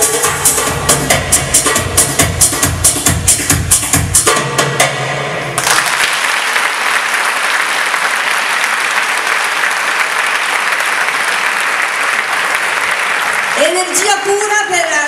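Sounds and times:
dance music: 0:00.0 - 0:05.6
audience applause: 0:05.6 - 0:14.5.

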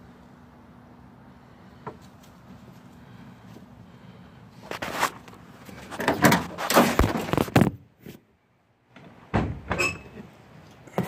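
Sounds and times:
short high squeak: 0:09.8 - 0:10.2.

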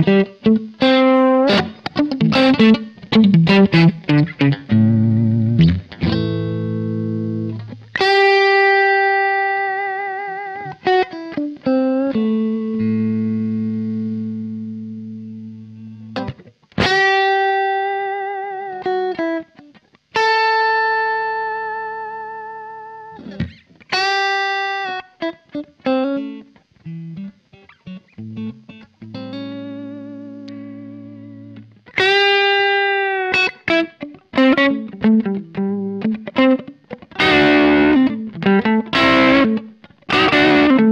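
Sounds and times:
electric guitar through amplifier: 0:00.0 - 0:40.9.

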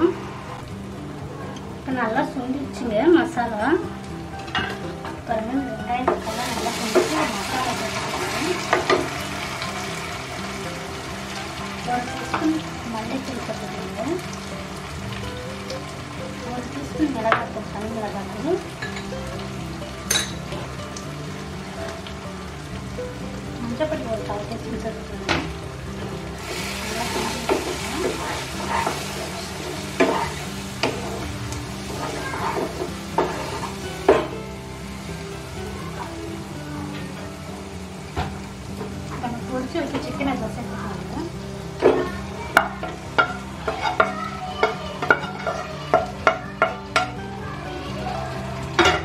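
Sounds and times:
food sizzling in oil: 0:00.0 - 0:49.0
wooden spatula scraping a pan: 0:26.4 - 0:34.3.

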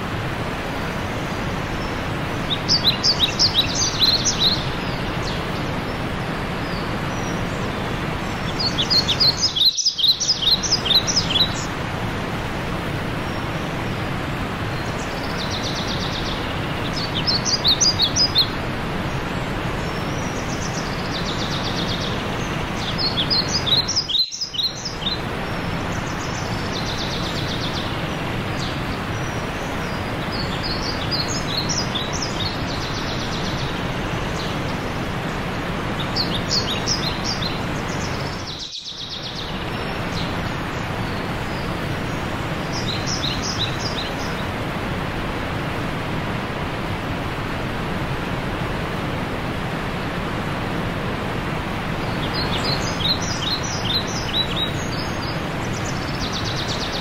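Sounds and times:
songbird singing: 0:00.0 - 0:44.8, 0:51.3 - 0:57.0
mountain stream rushing: 0:00.0 - 0:57.0.

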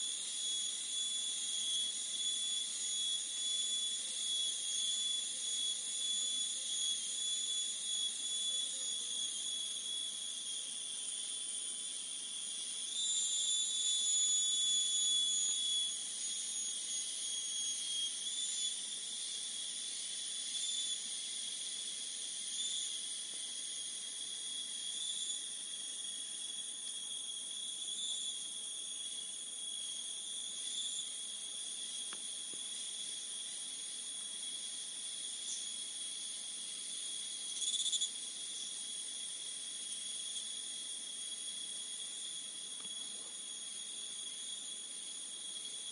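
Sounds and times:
insects shrill drone: 0:00.0 - 0:45.9.

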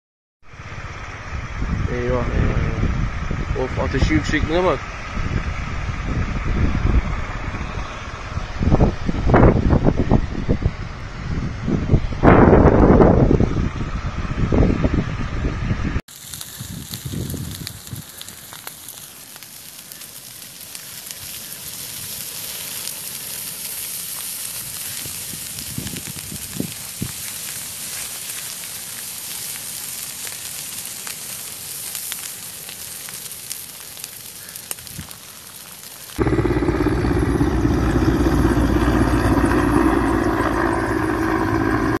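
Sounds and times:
grass fire hissing and crackling: 0:00.5 - 0:12.8, 0:16.0 - 0:42.0
helicopter flying overhead: 0:00.6 - 0:12.2, 0:36.2 - 0:42.0.

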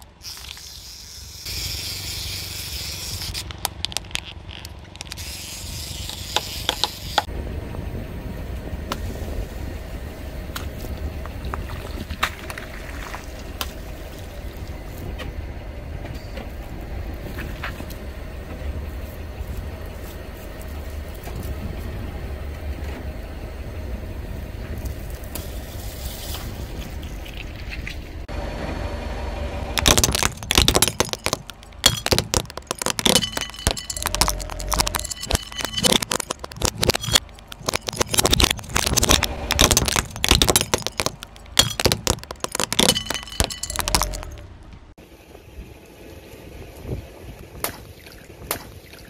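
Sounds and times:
car engine low rumble: 0:03.1 - 0:47.7
tyre crushing plastic toys: 0:03.2 - 0:05.2, 0:29.8 - 0:44.4.

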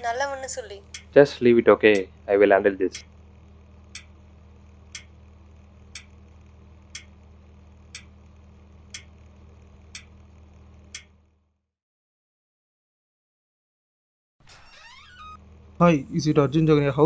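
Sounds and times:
low steady hum: 0:00.0 - 0:11.4
clock ticking: 0:00.8 - 0:01.3, 0:02.9 - 0:03.1, 0:03.9 - 0:04.1, 0:04.9 - 0:05.2, 0:05.9 - 0:06.2, 0:06.9 - 0:07.2, 0:07.9 - 0:08.1, 0:08.9 - 0:09.2.

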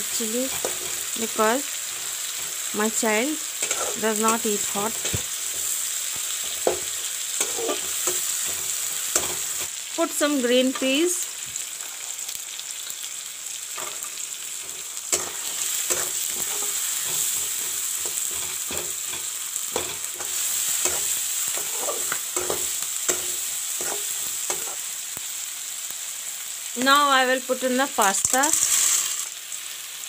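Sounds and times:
vegetables sizzling in hot oil: 0:00.0 - 0:30.0
metal spatula scraping a wok: 0:00.5 - 0:02.7, 0:03.4 - 0:09.7, 0:13.8 - 0:24.8, 0:28.1 - 0:29.3.

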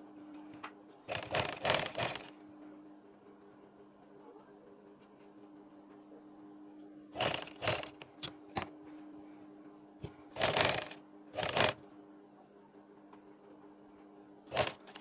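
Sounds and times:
faint steady hum: 0:00.0 - 0:15.0
sewing machine stitching: 0:01.1 - 0:02.3, 0:07.2 - 0:08.0, 0:10.3 - 0:11.8, 0:14.5 - 0:15.0.

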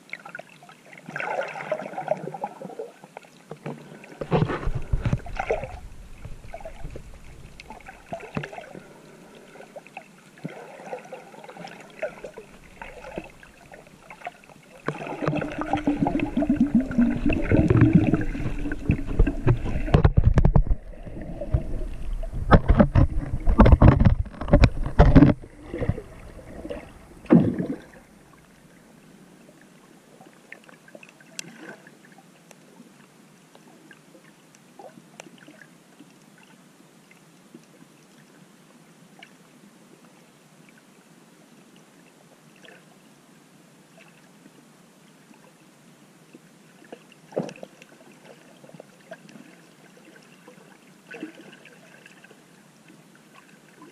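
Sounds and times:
faint underwater clicks and crackles: 0:00.0 - 0:43.1, 0:43.9 - 0:53.9
water splashing around swimmer: 0:00.2 - 0:03.0, 0:03.9 - 0:28.2.

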